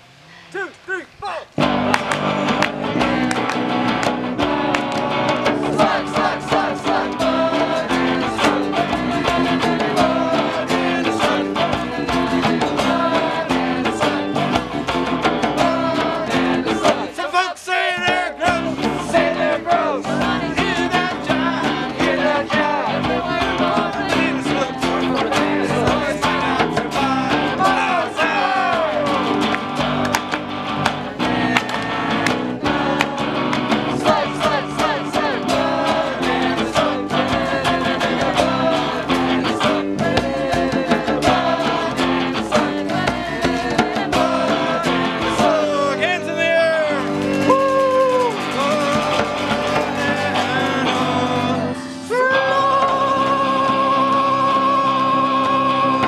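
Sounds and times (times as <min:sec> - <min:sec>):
strummed guitars: 0:01.5 - 0:56.0
group of voices singing: 0:01.6 - 0:56.0.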